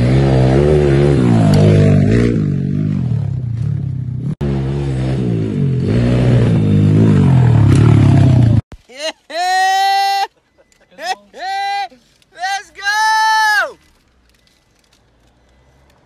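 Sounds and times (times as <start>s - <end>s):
dirt bike engine revving: 0.0s - 8.6s.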